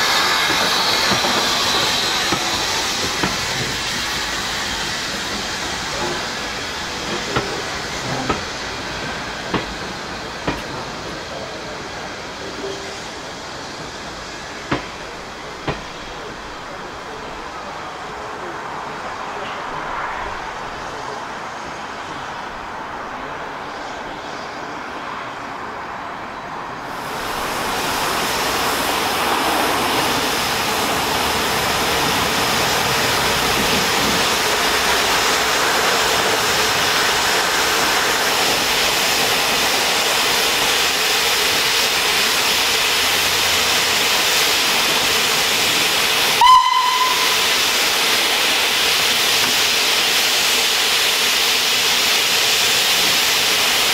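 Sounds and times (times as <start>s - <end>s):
steam safety valves hissing: 0.0s - 16.3s, 26.9s - 53.9s
steam whistle toot: 46.3s - 47.7s.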